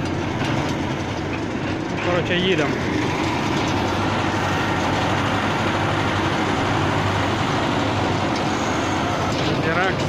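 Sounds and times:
tractor diesel engine running: 0.0s - 10.0s.

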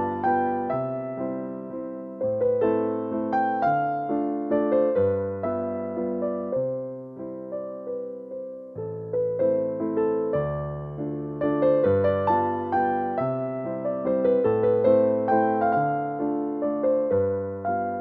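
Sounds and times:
piano music: 0.0s - 18.0s.

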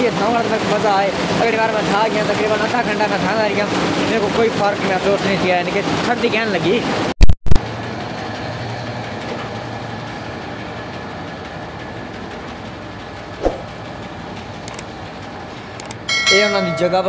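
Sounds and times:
steady rushing noise: 13.4s - 13.7s.

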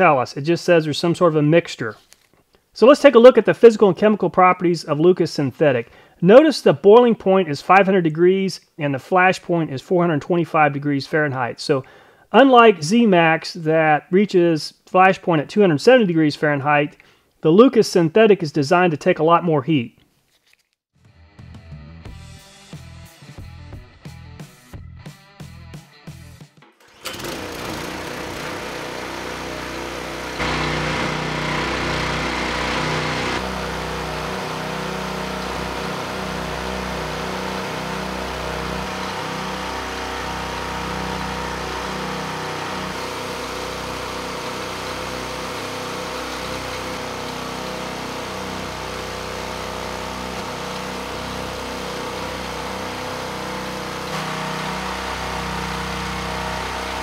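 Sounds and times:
small gasoline engines running: 26.8s - 57.0s.

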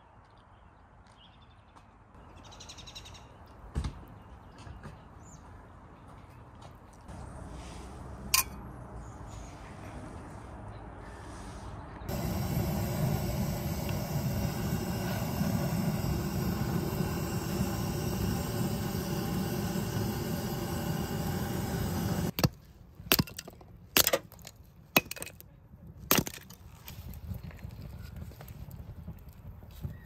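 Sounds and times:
butane torch hissing: 12.1s - 22.4s.

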